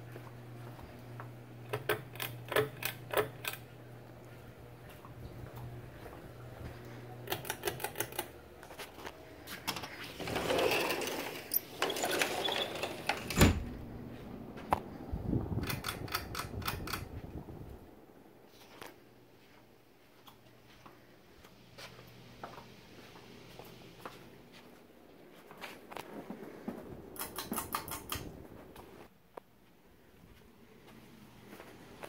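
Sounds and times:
ceiling fan humming: 0:00.0 - 0:32.0.

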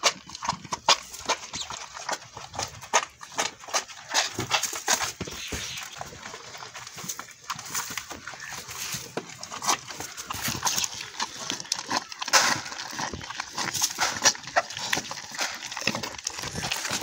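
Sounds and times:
calves suckling: 0:00.4 - 0:17.0.

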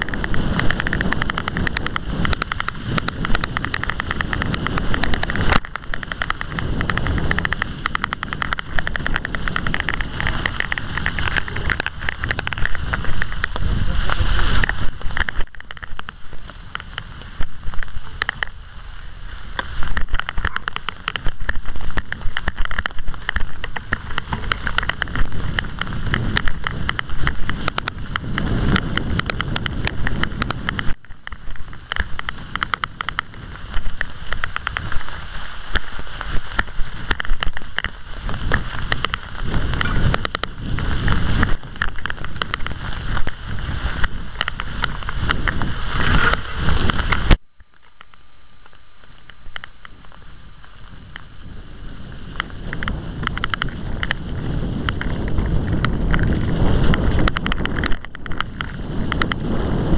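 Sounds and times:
deep rumbling: 0:00.0 - 0:47.6
bike rattling: 0:00.0 - 0:59.9
bike tyres rustling through leaves: 0:00.0 - 0:59.9.

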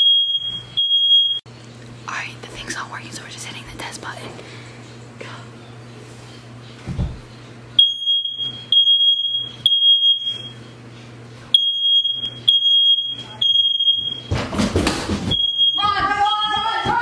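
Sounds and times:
smoke alarm beeping: 0:00.0 - 0:01.4, 0:07.8 - 0:10.8, 0:11.5 - 0:14.4, 0:15.3 - 0:16.9.

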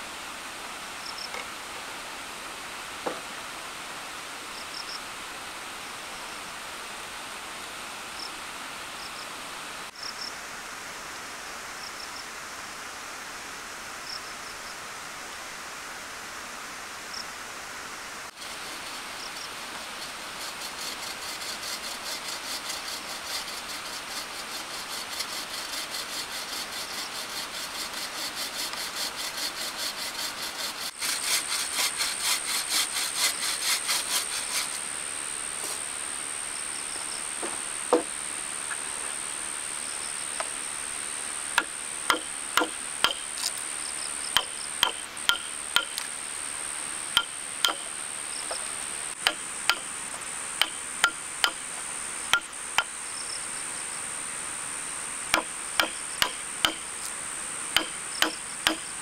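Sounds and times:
high insect drone: 0:18.4 - 0:59.0
hand saw cutting timber: 0:19.6 - 0:34.8, 0:41.6 - 0:43.6, 0:44.3 - 0:46.1, 0:47.2 - 0:49.9, 0:50.6 - 0:51.6, 0:52.3 - 0:52.9, 0:55.3 - 0:57.1, 0:57.7 - 0:59.0
chisel knocks on wood: 0:37.4 - 0:38.1.

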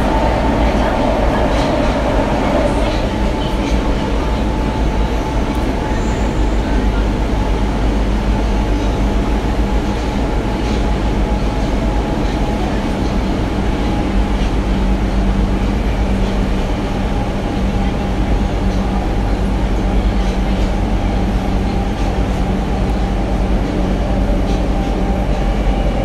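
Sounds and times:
low drone: 0:00.0 - 0:07.3
subway car wheels rumbling: 0:00.0 - 0:26.0.

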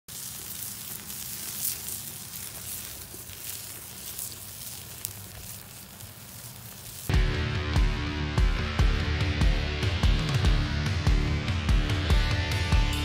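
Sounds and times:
patties sizzling on foil: 0:00.0 - 0:07.2
burning wood crackling: 0:00.0 - 0:08.1.

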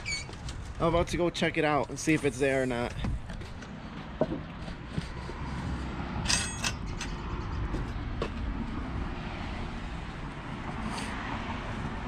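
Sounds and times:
low outdoor rumble: 0:00.0 - 0:12.0
chain-link gate clanking and rattling: 0:06.2 - 0:08.0.

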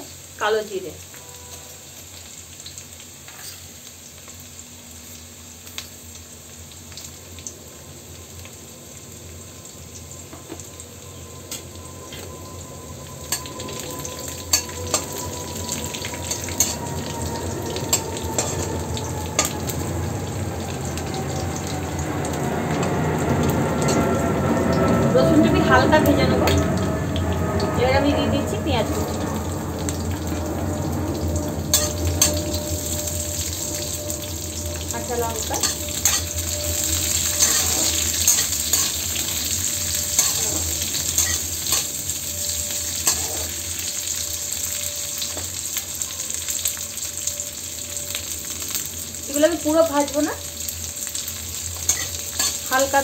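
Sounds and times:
seeds sizzling in oil: 0:00.0 - 0:24.8, 0:25.6 - 0:53.0
spatula scraping a pan: 0:35.3 - 0:41.9, 0:43.0 - 0:43.6, 0:51.9 - 0:52.7.

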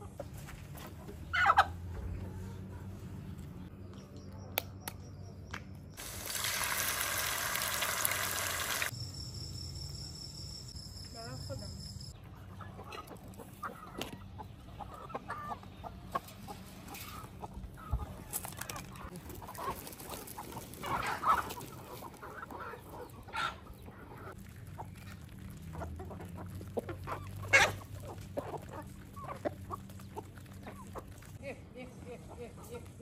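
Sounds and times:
chickens clucking: 0:00.0 - 0:03.3, 0:12.2 - 0:33.0.

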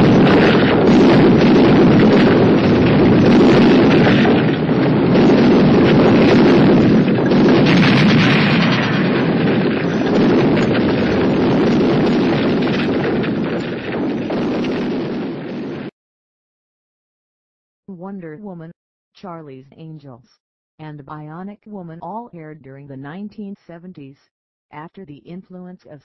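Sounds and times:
explosion rumble: 0:00.0 - 0:16.0.

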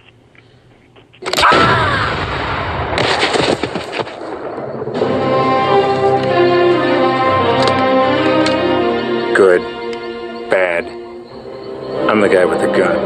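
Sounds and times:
music with sustained chords: 0:05.0 - 0:13.0.

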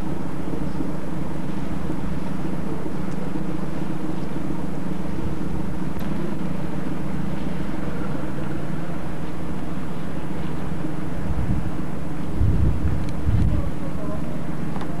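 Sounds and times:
ship engines droning: 0:00.0 - 0:15.0
wind noise on microphone: 0:11.2 - 0:13.9.

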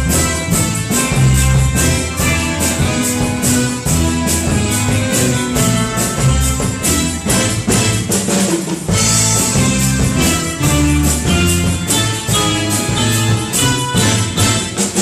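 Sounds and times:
bass line: 0:00.0 - 0:15.0
drum kit beat: 0:00.0 - 0:15.0
sustained pitched instruments: 0:00.0 - 0:15.0.

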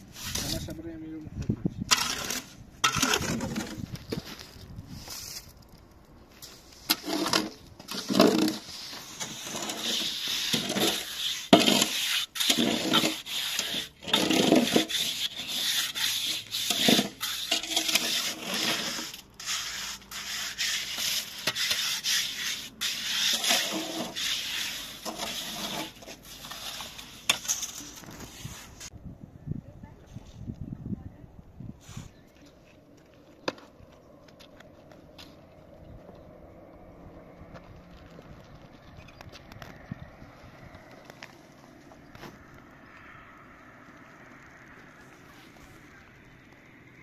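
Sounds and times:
trowel scraping wet mortar: 0:00.1 - 0:00.7, 0:01.9 - 0:04.0, 0:06.4 - 0:28.9.

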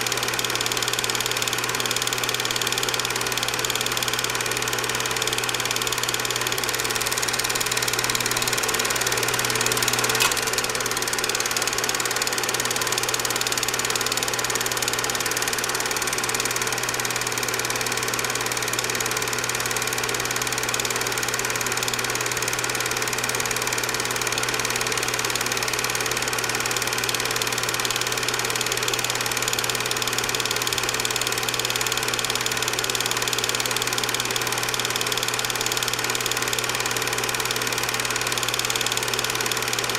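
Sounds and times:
film projector whirring and clattering: 0:00.0 - 0:39.9
sharp click: 0:07.0 - 0:11.5.

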